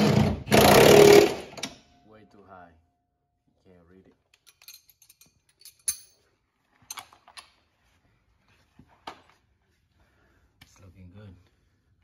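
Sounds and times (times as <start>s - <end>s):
metallic clicks and jingles of tools: 4.3s - 7.5s.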